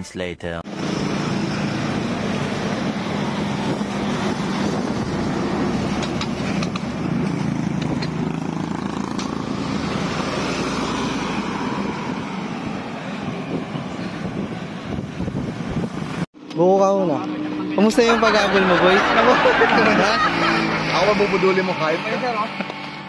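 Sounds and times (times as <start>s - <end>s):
road traffic rumble: 0.6s - 23.0s.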